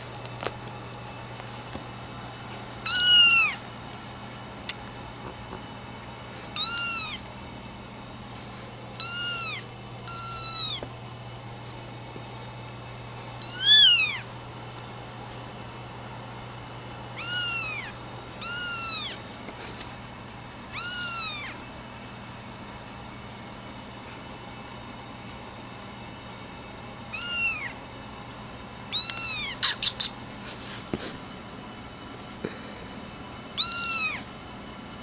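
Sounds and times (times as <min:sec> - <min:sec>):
kittens meowing: 0:02.8 - 0:03.6, 0:06.6 - 0:07.3, 0:09.0 - 0:10.8, 0:13.4 - 0:14.3, 0:17.2 - 0:19.2, 0:20.7 - 0:21.6, 0:27.1 - 0:27.8, 0:28.9 - 0:30.1, 0:33.6 - 0:34.3.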